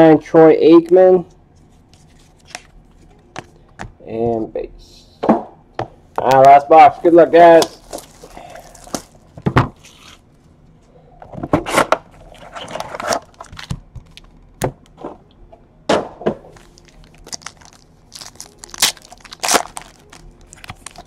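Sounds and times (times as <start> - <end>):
foil packs crinkling: 7.4 - 10.2, 12.2 - 14.4, 16.5 - 21.0
foil pack tearing open: 7.7 - 9.2, 12.2 - 14.3, 16.6 - 21.0.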